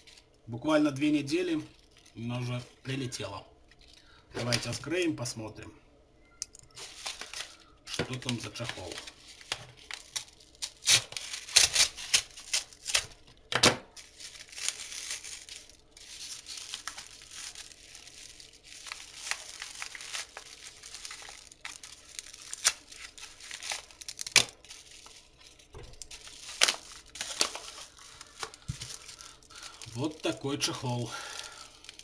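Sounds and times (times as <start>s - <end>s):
paper crinkling and rustling: 6.6s - 32.0s
paper envelope ripping: 6.7s - 13.2s, 13.9s - 32.0s.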